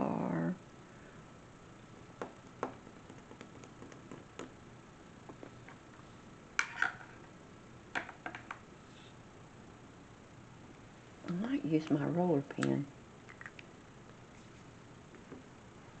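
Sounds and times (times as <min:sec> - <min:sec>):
pens clicking and tapping: 0:02.2 - 0:04.6.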